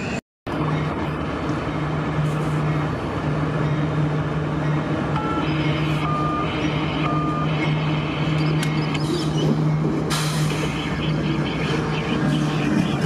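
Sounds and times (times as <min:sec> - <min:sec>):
locomotive engine hum: 0:00.0 - 0:13.0
high beeping tones: 0:04.6 - 0:09.1.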